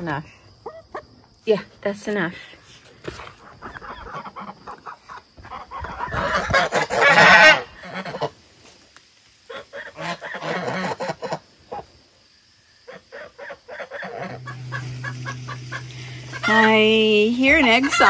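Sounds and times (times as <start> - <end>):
geese honking: 5.6 - 8.4, 9.5 - 11.8, 12.9 - 18.0.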